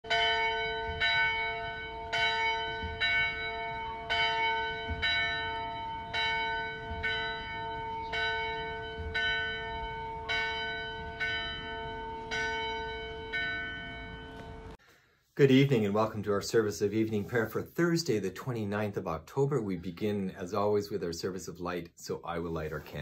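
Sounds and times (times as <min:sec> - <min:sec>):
church bell tolling: 0:00.0 - 0:14.8.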